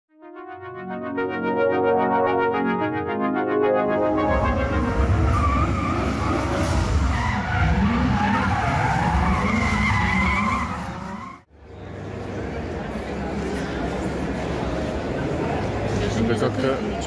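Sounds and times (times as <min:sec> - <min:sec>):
car engines revving: 0:04.2 - 0:16.0.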